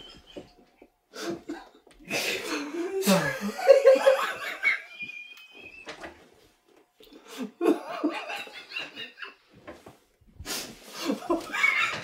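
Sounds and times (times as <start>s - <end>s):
man laughing: 1.2s - 5.0s, 7.3s - 9.3s, 11.0s - 12.0s.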